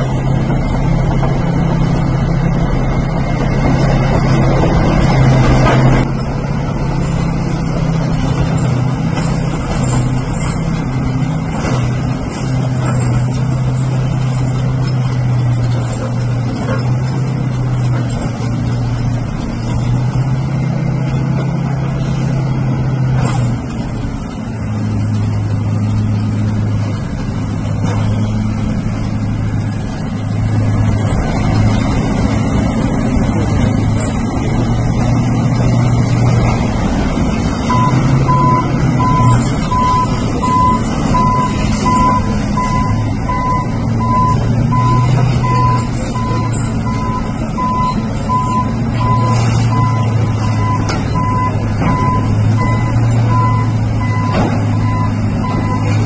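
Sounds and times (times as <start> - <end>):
bulldozer diesel engine drone: 0.0 - 56.0
reversing alarm beeping: 37.6 - 56.0.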